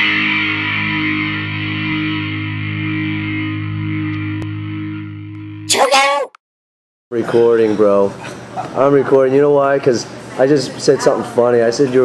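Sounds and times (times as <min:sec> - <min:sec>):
distorted electric guitar chord: 0:00.0 - 0:05.7.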